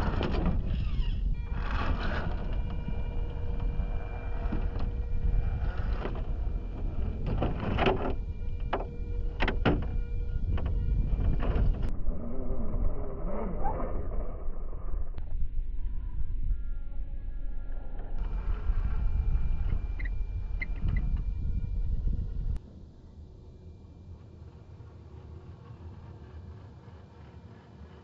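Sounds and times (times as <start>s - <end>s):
electric motor and gears whining: 0.0s - 14.6s, 16.5s - 22.6s
wind rumble on microphone: 0.0s - 28.0s.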